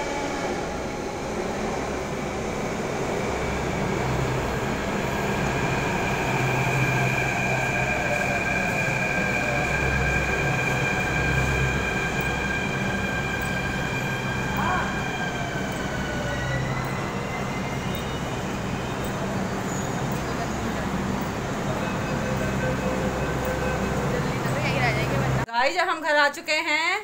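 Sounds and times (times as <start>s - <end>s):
train rumbling to a stop: 0.0s - 25.5s
high brake squeal: 5.4s - 25.1s.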